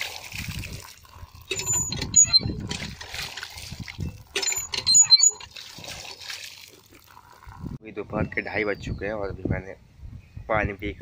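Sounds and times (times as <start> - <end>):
water splashing from hand pump: 0.0 - 7.7
person slurping water: 5.4 - 7.8.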